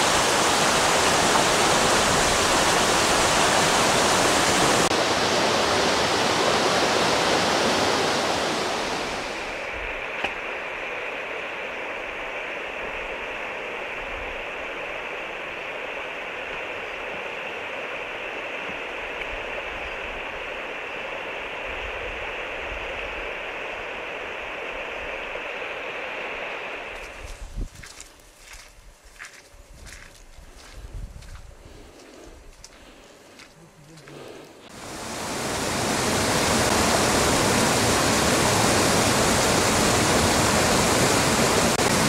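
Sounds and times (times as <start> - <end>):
stream rushing over boulders: 0.0 - 10.4, 34.7 - 42.0.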